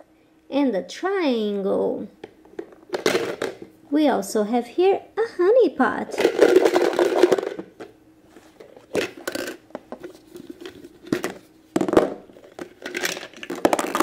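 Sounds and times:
plastic blocks clattering onto table: 0:06.2 - 0:07.8, 0:08.9 - 0:09.6, 0:11.0 - 0:14.0
plastic toy parts knocking: 0:11.1 - 0:14.0.

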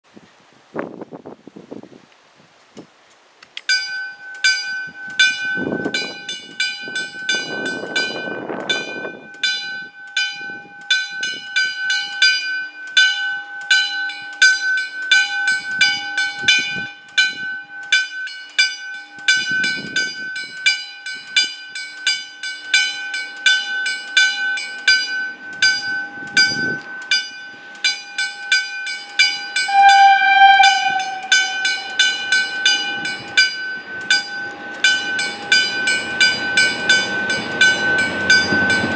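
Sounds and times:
level-crossing bell ringing: 0:03.7 - 0:38.9
train horn: 0:29.6 - 0:32.8.

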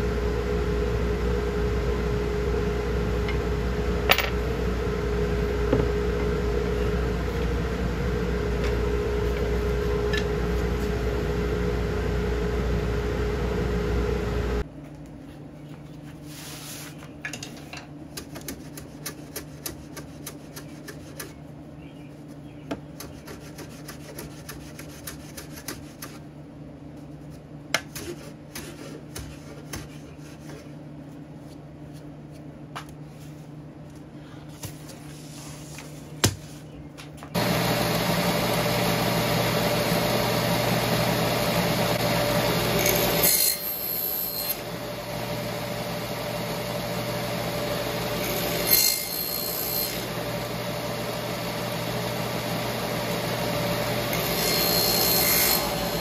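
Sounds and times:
low steady hum: 0:00.0 - 0:18.9
hand sanding wood: 0:23.1 - 0:26.2
machine whining loudly: 0:37.4 - 0:56.0.

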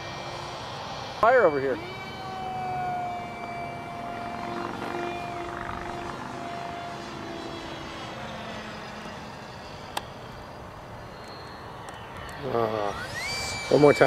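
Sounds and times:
electric ducted fan whining: 0:00.0 - 0:14.0.

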